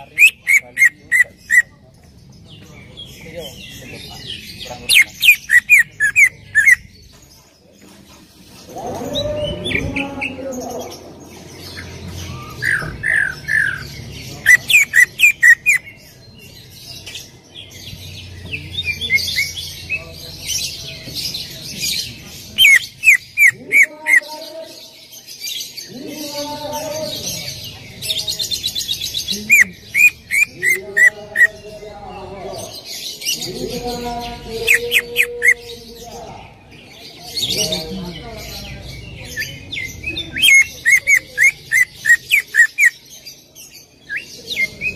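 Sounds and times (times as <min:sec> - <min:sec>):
bird whistling and chattering: 0:00.0 - 0:01.7, 0:04.9 - 0:06.9, 0:11.8 - 0:16.0, 0:28.7 - 0:31.6, 0:39.3 - 0:43.0.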